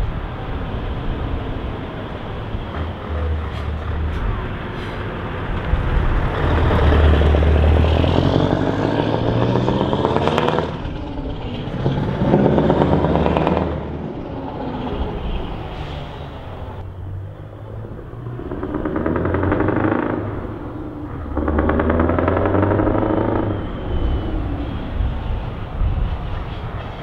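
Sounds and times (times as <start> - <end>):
truck engine accelerating: 0.0 - 27.0
exhaust crackle: 16.5 - 27.0.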